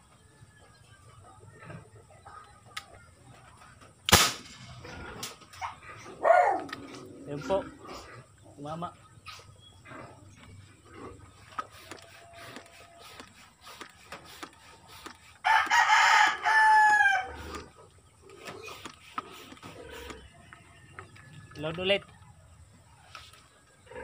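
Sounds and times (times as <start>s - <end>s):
rooster crowing: 15.4s - 17.6s.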